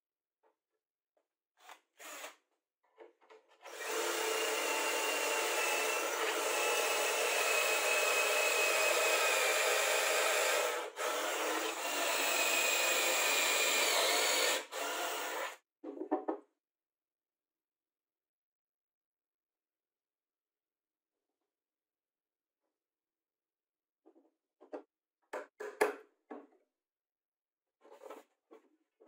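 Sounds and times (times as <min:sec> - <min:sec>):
cordless drill boring into wood: 0:01.6 - 0:02.4, 0:03.6 - 0:15.6.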